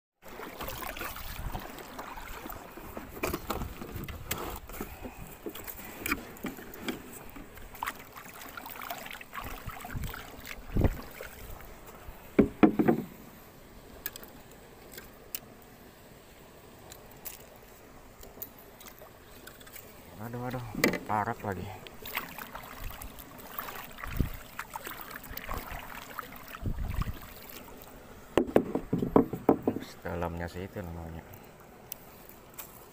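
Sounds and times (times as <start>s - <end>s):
water rushing: 0.2s - 4.7s, 5.4s - 32.2s
gear knocking in a boat: 12.4s - 13.1s, 28.4s - 30.0s.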